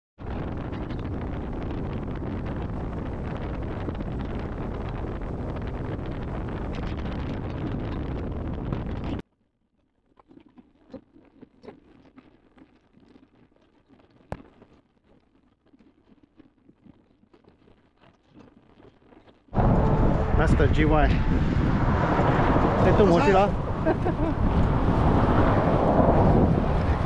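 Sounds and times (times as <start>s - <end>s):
wind buffeting microphone: 0.2s - 9.2s, 19.6s - 27.0s.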